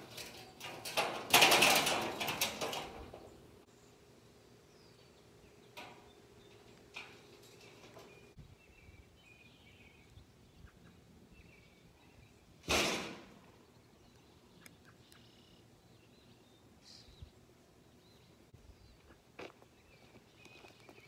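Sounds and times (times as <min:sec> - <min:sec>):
faint bird chirps: 0:13.7 - 0:17.4.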